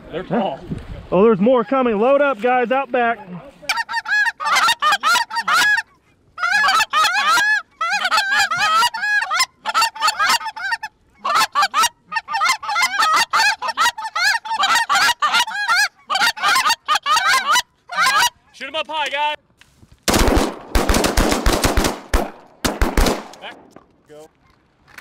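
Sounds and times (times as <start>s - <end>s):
goose call honks and clucks: 3.2s - 18.7s.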